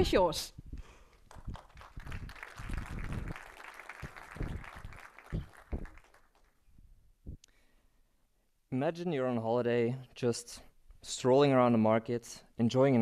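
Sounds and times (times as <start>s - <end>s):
audience applauding: 1.2s - 6.6s.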